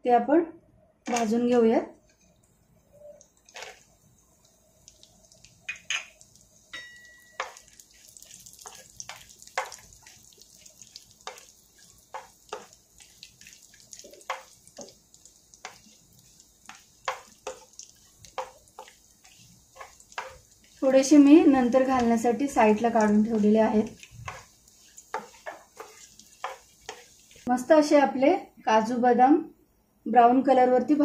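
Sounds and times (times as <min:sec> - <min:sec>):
faint sizzle: 0:01.1 - 0:29.4
nuts crackling in a pan: 0:03.0 - 0:27.5.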